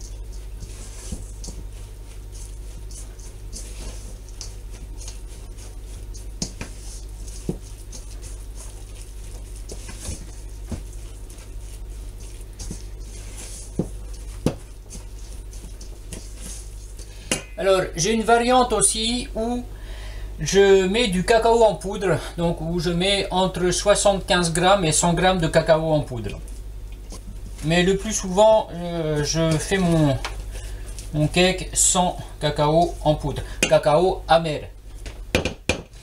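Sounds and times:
spoon scraping batter in a bowl: 0.0s - 17.1s.

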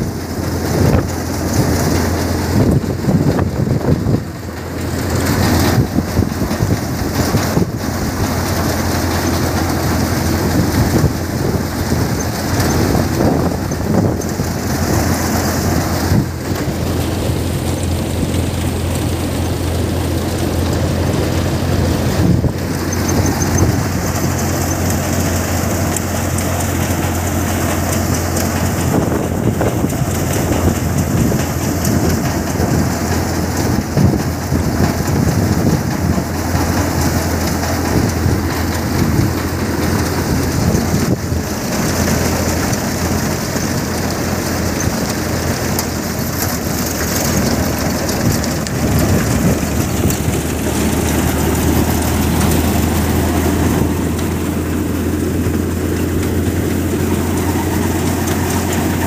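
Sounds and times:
low engine hum: 0.0s - 59.0s
thresher mechanical din: 0.0s - 59.0s.

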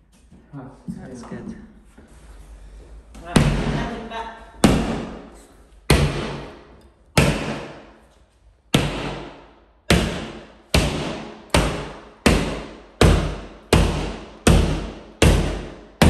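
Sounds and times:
hammer blows on plasterboard: 8.7s - 16.0s.

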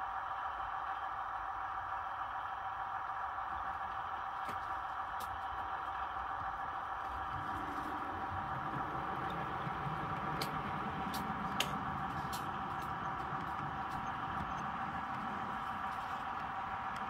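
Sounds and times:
model train motor hum: 0.1s - 17.0s
sharp clicks from track: 8.8s - 17.0s.

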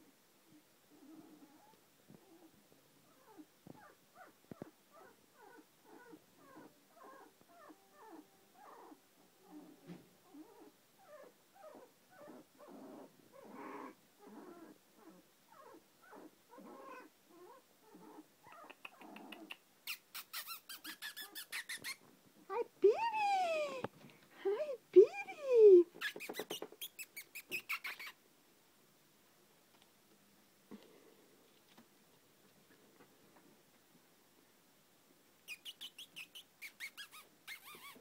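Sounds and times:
puppies whining and whimpering: 4.9s - 18.7s.

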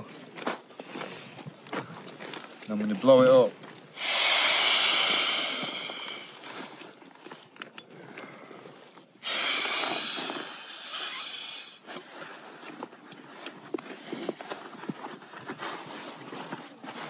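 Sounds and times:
breath blowing into pillow valve: 3.9s - 6.9s, 9.2s - 12.5s.

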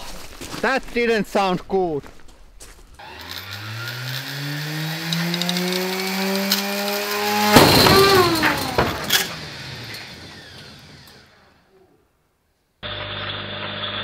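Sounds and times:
grinding disc motor whine: 3.0s - 11.7s, 12.8s - 14.0s
disc bursting with loud crack: 7.0s - 11.4s.

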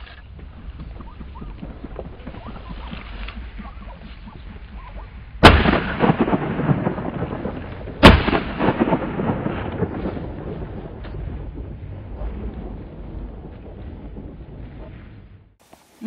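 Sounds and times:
shotgun shots with rolling echo: 5.4s - 11.0s.

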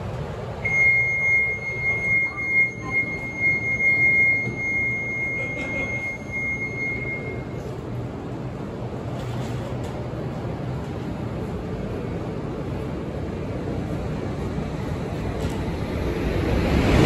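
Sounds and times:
train and station rumble: 0.0s - 17.0s
departure warning buzzer: 0.6s - 7.6s.

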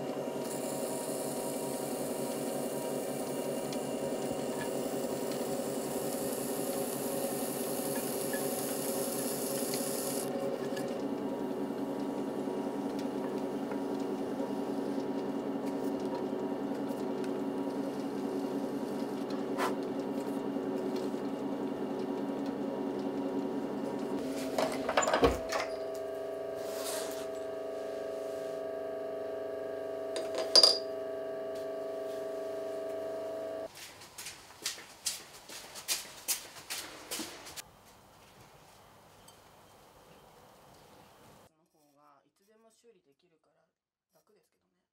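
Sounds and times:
potter's wheel motor humming: 0.0s - 33.7s.

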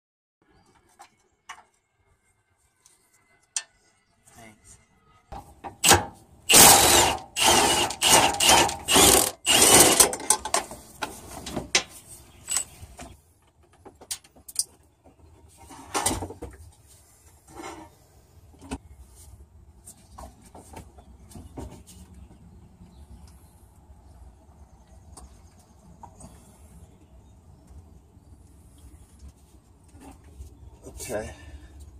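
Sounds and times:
ratchet clicking: 5.8s - 10.3s.

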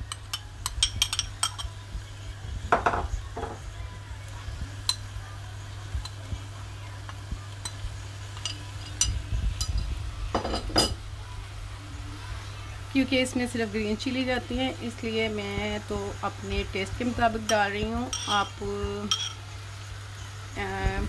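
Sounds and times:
utensils clinking and scraping dishes: 8.4s - 11.0s, 17.5s - 19.4s.

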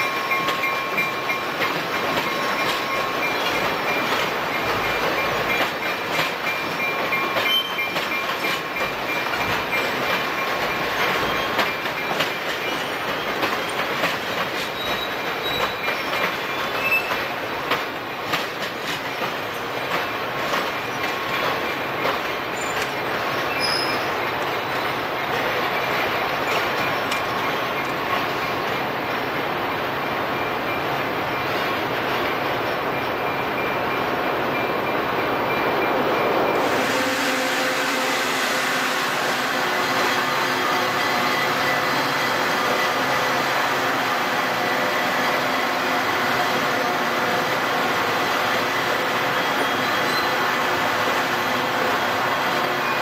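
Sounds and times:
train wheels clicking over rail joints: 0.0s - 29.3s
train rolling rumble: 0.0s - 53.0s
thin wheel squeals: 7.4s - 7.9s, 14.7s - 17.2s, 22.5s - 24.2s, 49.4s - 50.4s.

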